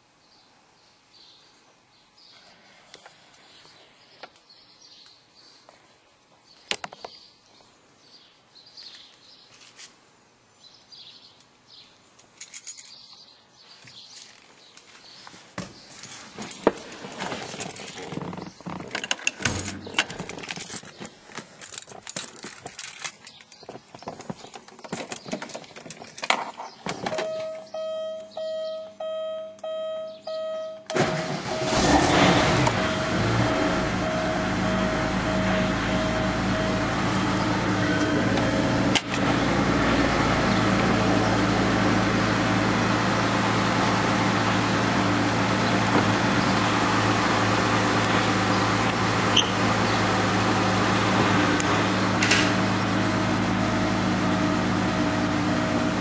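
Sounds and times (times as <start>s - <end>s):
keys jangling: 12.3s - 13.0s, 21.6s - 23.7s
car warning chime beeping: 27.2s - 38.1s.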